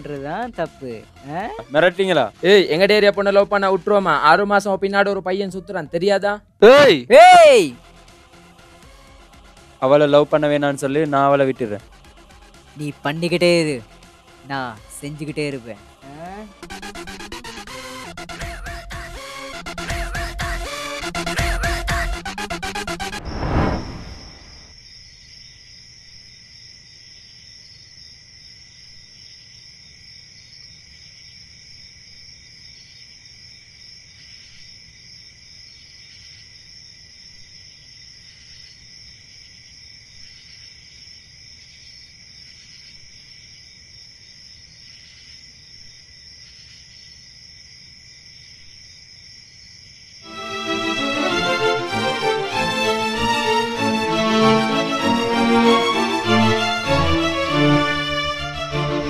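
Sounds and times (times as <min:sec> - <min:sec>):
crickets trilling: 0:23.2 - 0:50.3.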